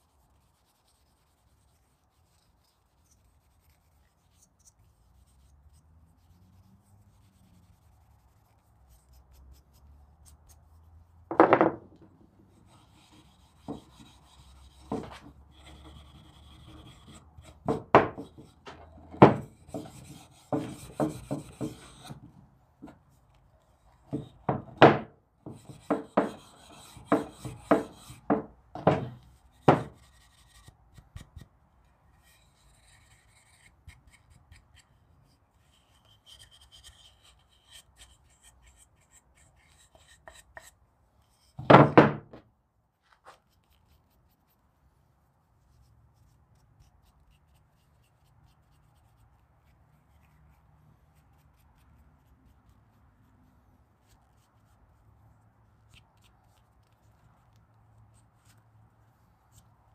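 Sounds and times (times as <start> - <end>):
hand tool scraping wood: 12.5 - 23.0, 23.8 - 31.5, 35.6 - 41.7.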